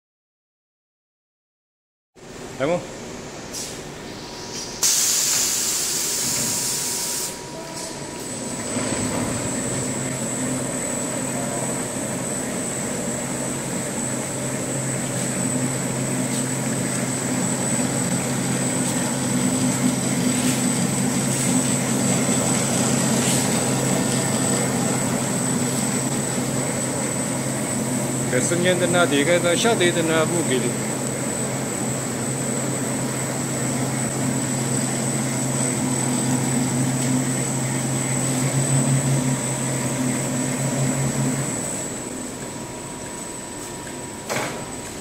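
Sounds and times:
machine running with hum and whine: 2.2s - 45.0s
loud hiss: 4.4s - 7.4s.

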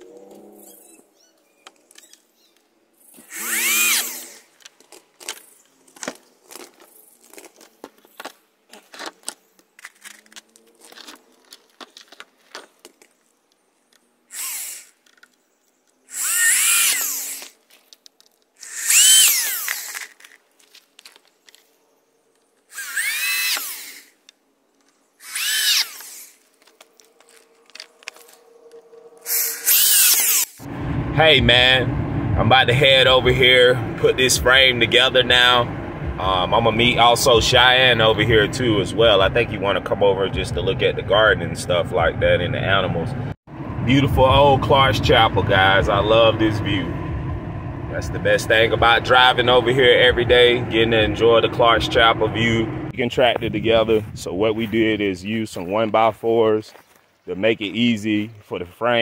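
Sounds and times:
power drill whining into wood: 3.2s - 4.6s, 14.3s - 15.1s, 16.1s - 17.6s, 18.6s - 20.4s, 22.7s - 24.2s, 25.2s - 26.7s, 29.2s - 30.6s
handling clicks and wood knocks: 26.0s - 29.1s.

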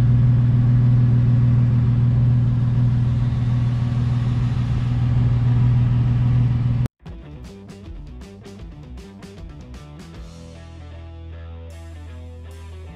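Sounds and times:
car engine idling: 0.0s - 6.9s.

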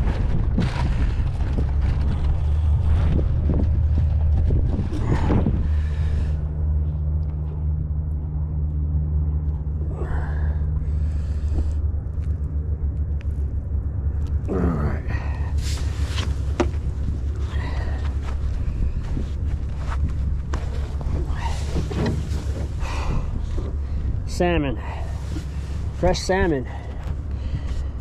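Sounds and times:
low rumble with hum: 0.0s - 28.0s
wind buffeting microphone: 0.0s - 28.0s
short rustles: 15.5s - 24.2s.

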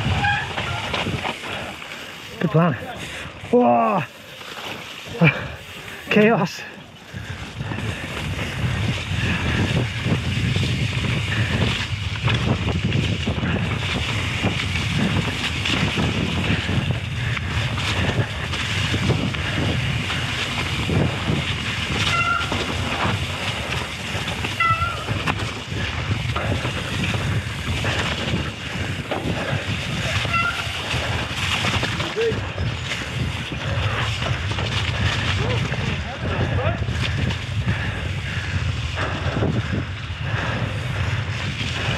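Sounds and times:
short high squeaks: 0.0s - 0.9s, 30.1s - 30.8s
mountain bike tyres and rattling: 0.0s - 41.9s
bike knocking over rough ground: 7.8s - 36.0s.

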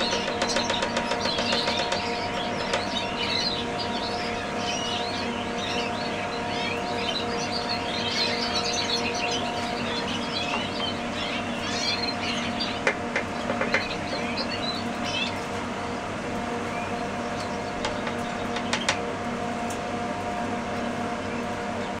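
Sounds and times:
canaries chirping: 0.0s - 15.5s
steady background hum: 0.0s - 22.0s.

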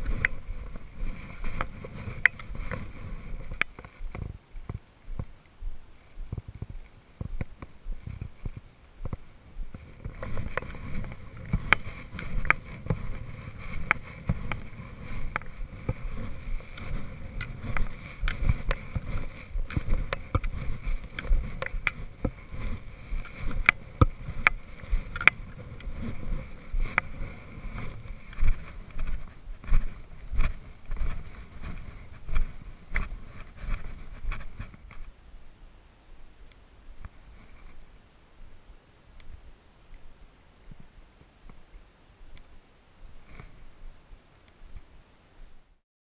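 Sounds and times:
footsteps crunching on rocks: 0.0s - 35.2s
trekking poles clicking on stone: 0.0s - 35.2s
wind buffeting microphone: 0.0s - 35.6s.

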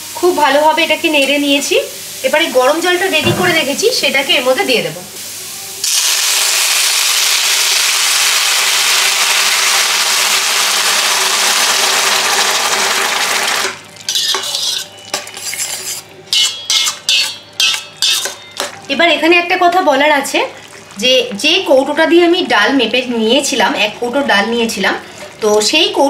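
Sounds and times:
water sizzling in hot pan: 0.0s - 26.0s
metal spatula scraping steel pan: 14.1s - 18.7s.

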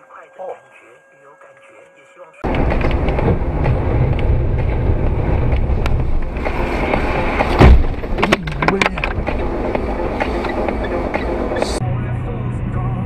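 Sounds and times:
car road and engine noise: 2.4s - 13.0s
heavy thump: 2.5s - 9.4s.

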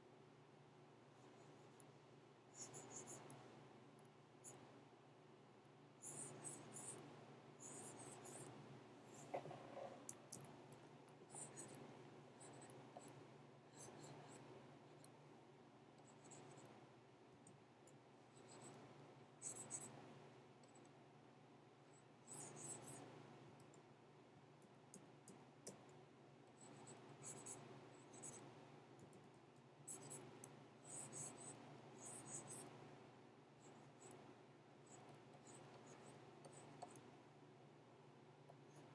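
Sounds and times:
low steady hum: 0.0s - 38.9s
stylus scratching on tablet: 1.1s - 1.9s, 2.5s - 3.6s, 4.4s - 4.8s, 6.0s - 15.2s, 15.9s - 16.8s, 18.3s - 20.9s, 21.9s - 23.3s, 26.5s - 32.9s, 33.6s - 37.2s.

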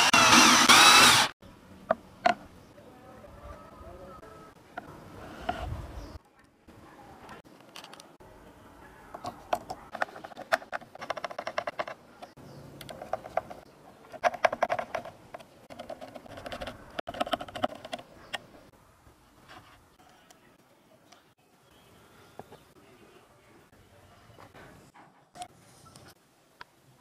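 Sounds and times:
screwdriver turning screws ticking: 0.0s - 1.3s.

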